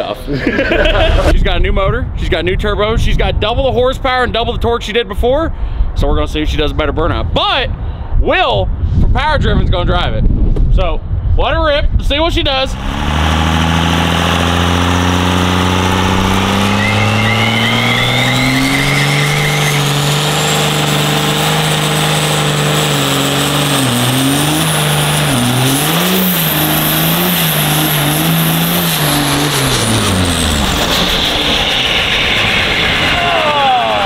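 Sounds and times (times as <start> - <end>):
diesel engine revving: 12.6 - 34.0
turbo whistle: 16.1 - 20.4.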